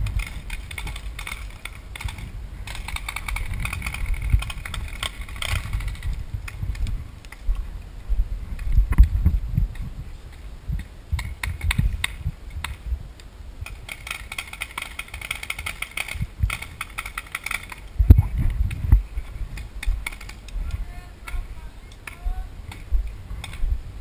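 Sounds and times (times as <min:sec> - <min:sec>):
clicks and knocks from movement: 0:00.0 - 0:07.5, 0:13.6 - 0:23.6
wind buffeting microphone: 0:00.0 - 0:24.0.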